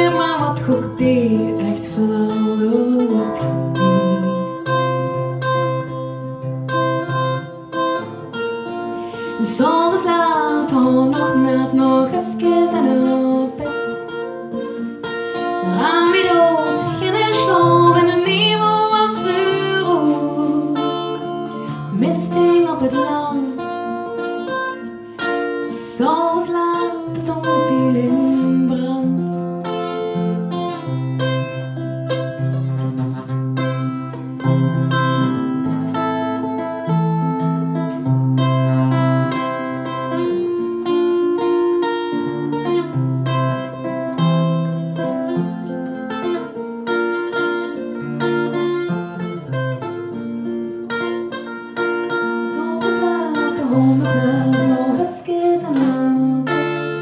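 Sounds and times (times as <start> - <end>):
woman singing: 0.0 - 5.4, 9.1 - 24.5, 25.2 - 30.4, 52.1 - 57.0
strummed acoustic guitar: 0.0 - 57.0.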